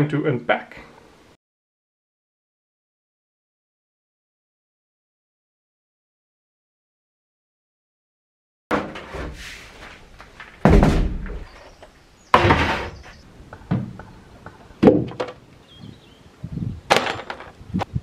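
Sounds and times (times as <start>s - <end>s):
plastic drums knocking and thudding: 8.7s - 9.4s, 10.2s - 11.6s, 12.3s - 14.1s, 14.8s - 15.4s, 16.9s - 17.9s.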